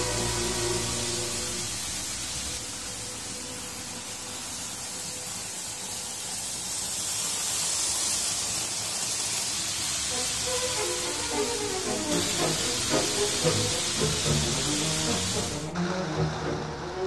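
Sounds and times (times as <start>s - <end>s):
orchestral music: 0.0s - 4.0s, 10.1s - 17.0s
model train running on track: 0.0s - 17.0s.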